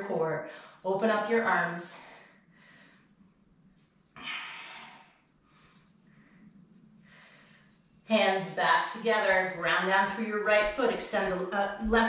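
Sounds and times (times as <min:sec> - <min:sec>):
woman breathing: 0:02.0 - 0:03.4, 0:04.1 - 0:08.1.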